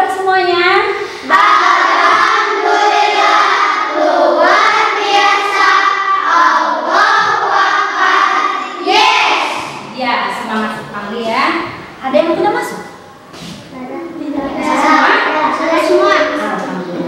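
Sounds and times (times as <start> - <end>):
children singing in unison: 1.2 - 9.9.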